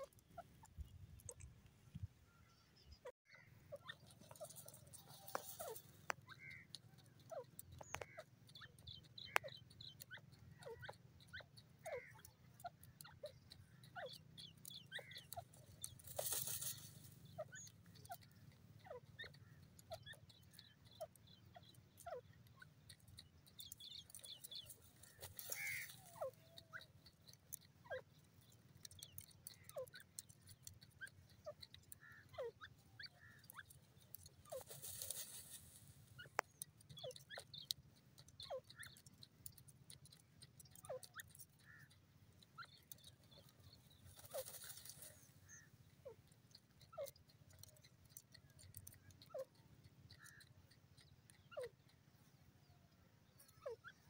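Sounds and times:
bird scratching in dry soil: 3.9s - 8.2s, 14.7s - 18.7s, 22.7s - 32.3s, 33.2s - 45.6s.

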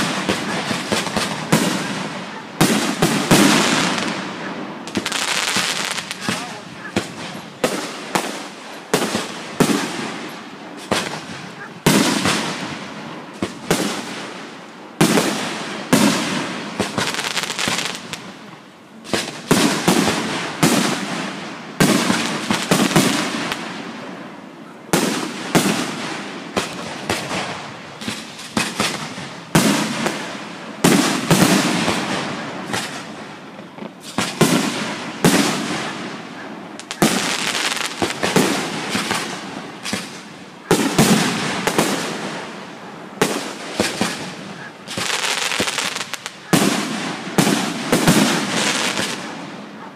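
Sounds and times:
fireworks bursting with echo: 0.0s - 49.9s.

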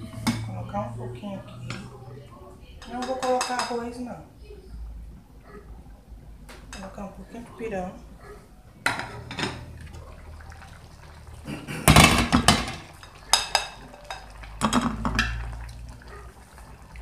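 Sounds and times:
pot lids clanking: 2.8s - 4.0s, 8.8s - 9.8s, 11.7s - 15.6s.

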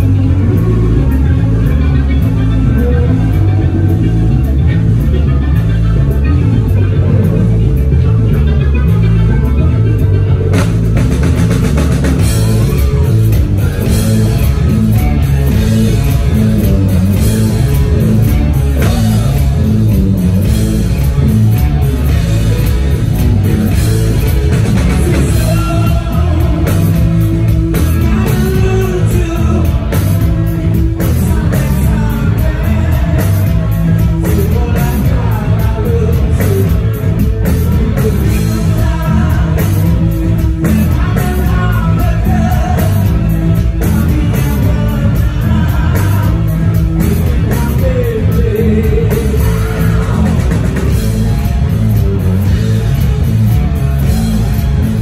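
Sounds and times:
bass guitar: 0.0s - 55.0s
drum kit beat: 0.0s - 55.0s
electric guitars: 0.0s - 55.0s
person singing: 21.0s - 51.3s.

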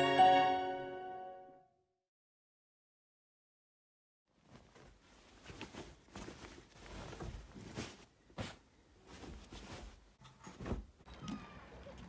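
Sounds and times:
bedding rustling: 4.3s - 11.1s.

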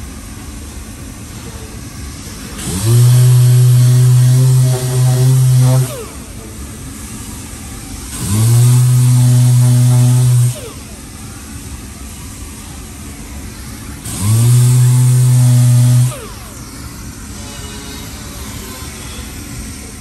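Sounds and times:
orbital sander whining: 2.6s - 6.4s, 8.1s - 11.0s, 14.0s - 16.6s.

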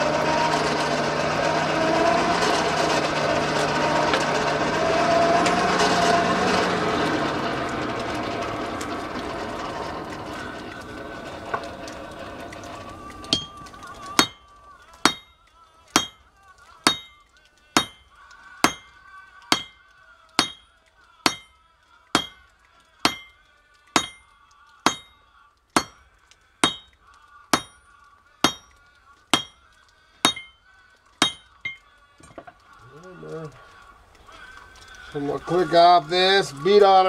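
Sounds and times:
hammer striking metal on anvil: 13.3s - 13.6s, 14.2s - 14.4s, 15.0s - 15.4s, 16.0s - 16.2s, 16.8s - 17.2s, 17.8s - 19.8s, 20.4s - 20.6s, 21.2s - 21.6s, 22.2s - 22.4s, 23.0s - 23.4s, 24.0s - 25.2s, 25.8s - 26.0s, 26.6s - 29.6s, 30.2s - 30.6s, 31.2s - 32.5s.

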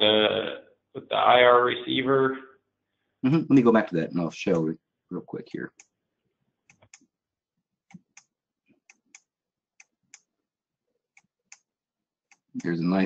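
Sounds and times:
computer mouse clicks: 6.7s - 7.0s.

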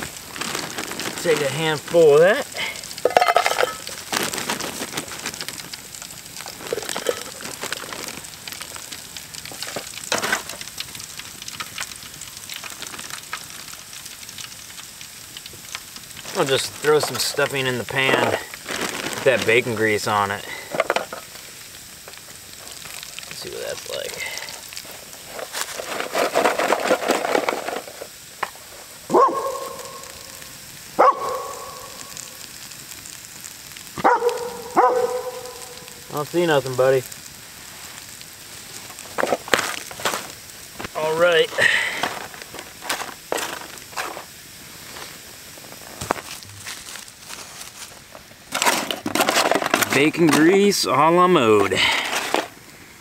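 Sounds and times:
bacon sizzling: 0.0s - 53.0s
campfire crackling: 0.0s - 53.0s
rustle: 0.0s - 53.0s
dog barking: 29.1s - 30.1s, 31.0s - 32.0s, 34.0s - 35.8s.

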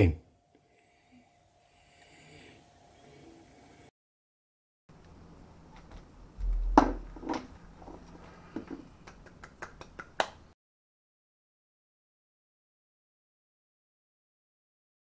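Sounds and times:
dull thump: 6.4s - 7.3s.

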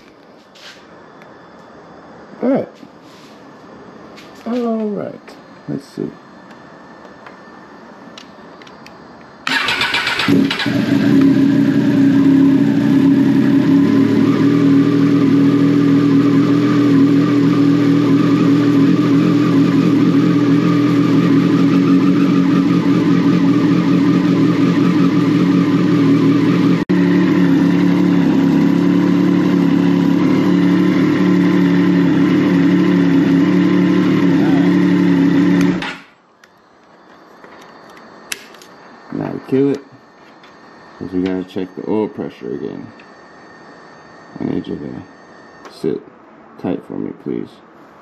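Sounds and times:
motorcycle engine starting and idling: 9.4s - 36.1s.

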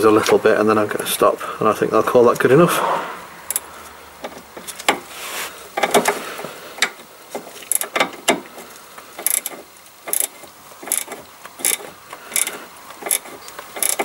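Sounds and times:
spanner metallic clicks: 3.5s - 5.0s, 7.7s - 8.4s, 9.2s - 14.0s.

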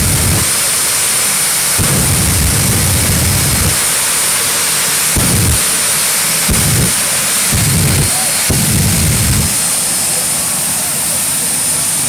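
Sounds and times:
exhaust flame thumps: 0.0s - 0.6s, 1.8s - 4.0s, 5.1s - 9.7s
jet engine hissing roar: 0.0s - 12.0s.

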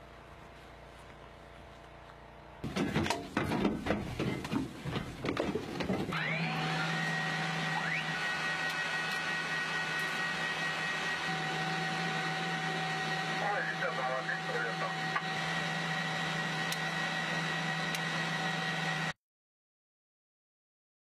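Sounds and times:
knocks and rustling: 2.6s - 6.2s
electronic hum with whining tones: 6.1s - 19.2s
short rising whine: 6.1s - 19.2s.

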